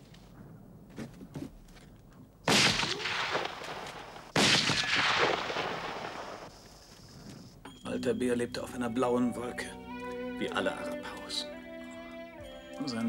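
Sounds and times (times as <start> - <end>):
gunshots with echo: 2.5 - 6.5.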